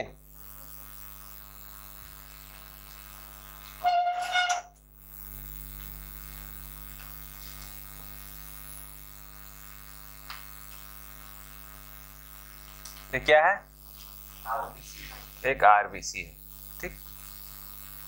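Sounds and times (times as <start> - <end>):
electrical mains hum: 0.0 - 18.0
short loud pitched sound: 3.8 - 4.8.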